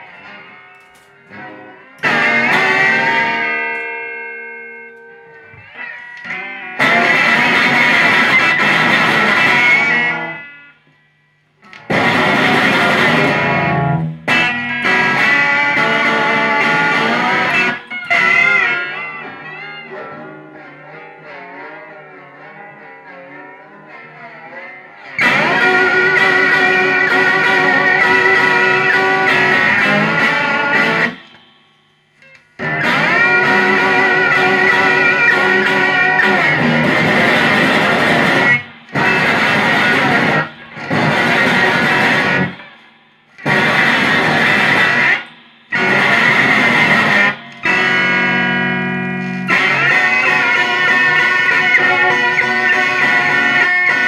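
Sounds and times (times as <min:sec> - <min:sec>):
loud improvised guitar noise: 0:00.0 - 0:54.0
held low guitar tone: 0:11.9 - 0:54.0.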